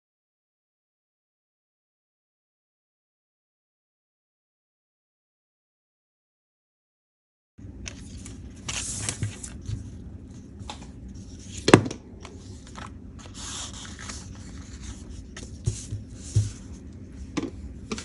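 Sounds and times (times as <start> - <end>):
paper rustling: 7.8 - 16.9.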